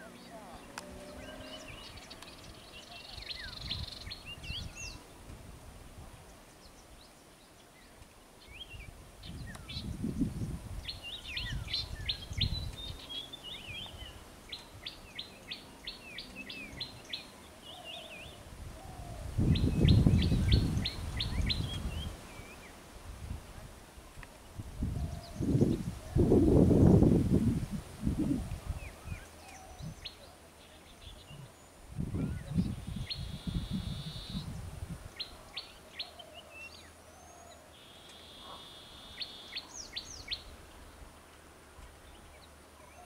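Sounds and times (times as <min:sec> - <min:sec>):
birds chirping and calling: 0:00.0 - 0:05.1, 0:06.6 - 0:22.7, 0:32.2 - 0:40.5.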